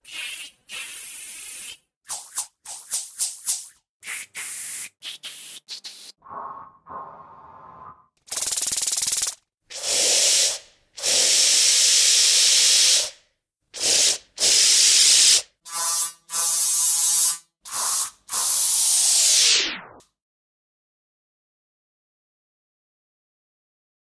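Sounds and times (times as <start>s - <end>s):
spray paint can hissing: 0.0s - 6.2s, 8.3s - 13.2s, 13.8s - 19.6s.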